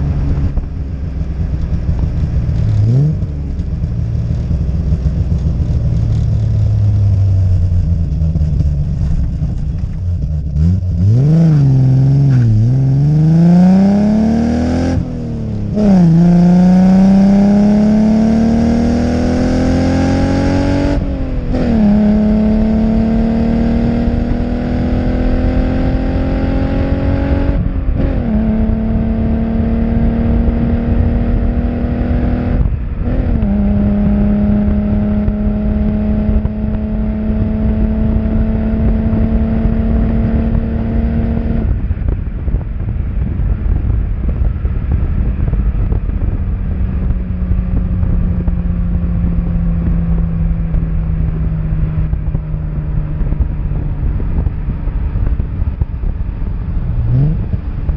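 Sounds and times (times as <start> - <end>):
car engine accelerating: 0.0 - 57.9
road noise: 0.0 - 57.9.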